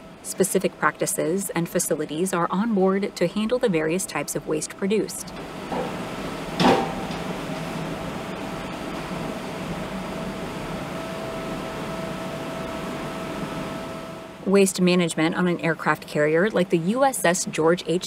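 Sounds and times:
machinery hum with whine: 0.0 - 18.0
sharp knock: 6.6 - 7.3.

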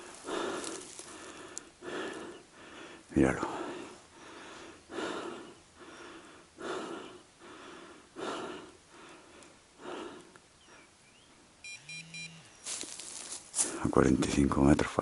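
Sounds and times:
heavy breathing: 0.0 - 11.0, 13.2 - 13.9
electronic beeps: 11.6 - 12.7.

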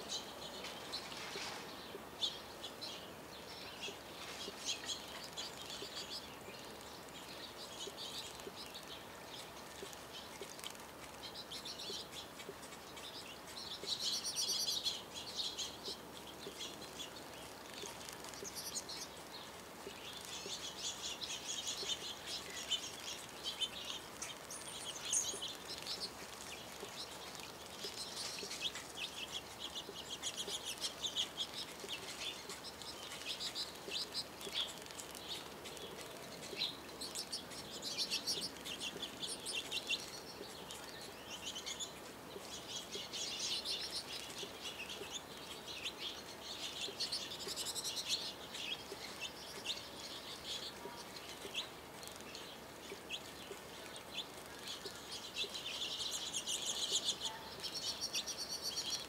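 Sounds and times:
birds twittering: 0.0 - 59.0
wing flutters: 16.4 - 45.6.

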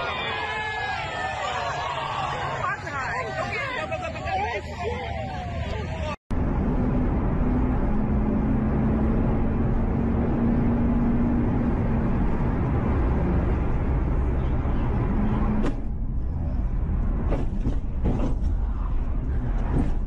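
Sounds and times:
car engine and tyre noise: 0.0 - 20.0
sharp knocks and thumps: 17.2 - 18.6.

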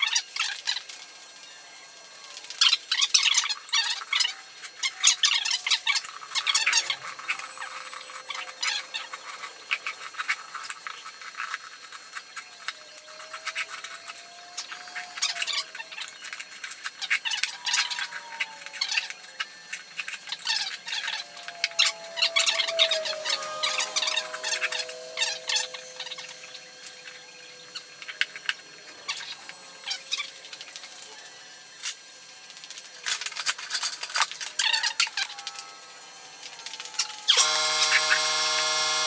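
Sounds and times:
wavering squeaks: 3.0 - 32.0.

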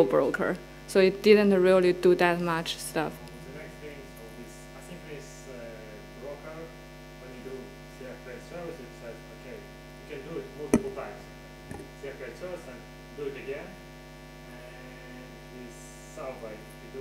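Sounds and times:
electrical mains hum: 0.0 - 17.0
sharp knock: 10.8 - 11.0.

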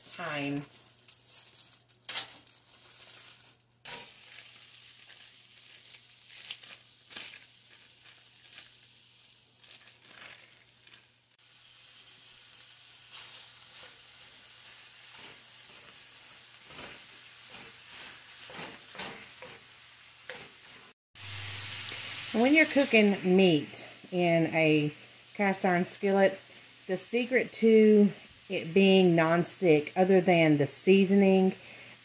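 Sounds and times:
meat sizzling in a skillet: 0.0 - 2.3, 3.0 - 29.1
wooden spatula scraping: 13.1 - 19.7.

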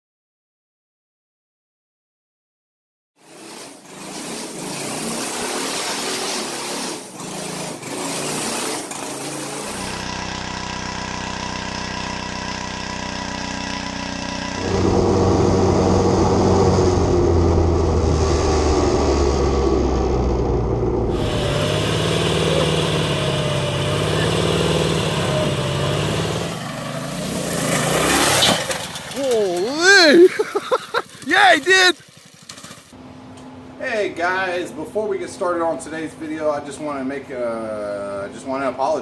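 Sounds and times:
small gasoline engines revving: 3.2 - 33.0.

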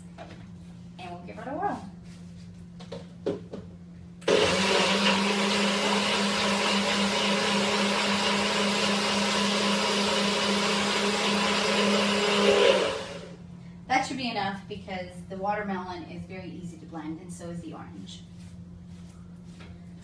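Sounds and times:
blender running: 4.2 - 13.4.

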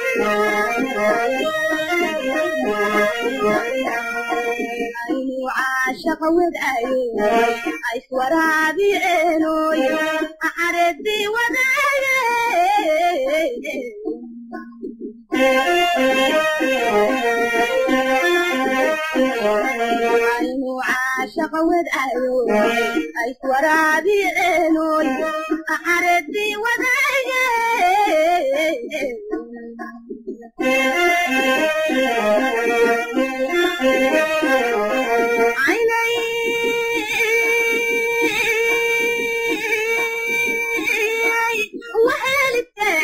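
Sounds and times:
woman singing slow melody: 2.6 - 14.3, 19.7 - 30.5, 34.9 - 43.0.

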